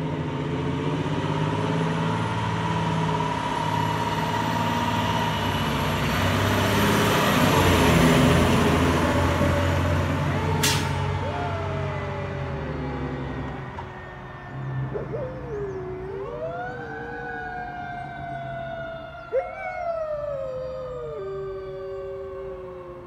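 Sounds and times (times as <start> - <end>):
fire engine siren wailing: 0.0 - 23.0
low engine rumble: 7.1 - 23.0.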